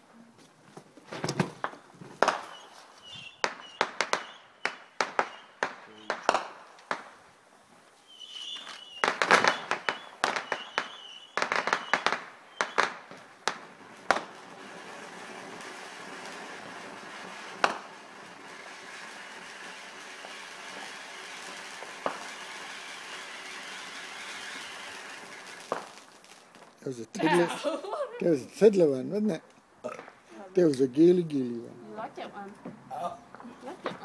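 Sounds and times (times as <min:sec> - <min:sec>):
firework crackles and pops: 0:01.3 - 0:27.4
firework spraying hiss: 0:08.0 - 0:27.6.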